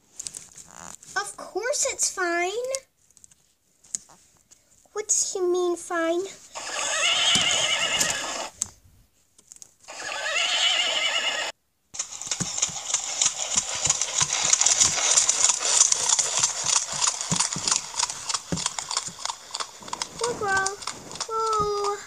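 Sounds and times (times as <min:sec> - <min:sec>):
horse hoofbeats cantering: 0:06.5 - 0:08.5, 0:12.0 - 0:22.0
horse whinnying: 0:06.5 - 0:08.6, 0:09.9 - 0:11.6.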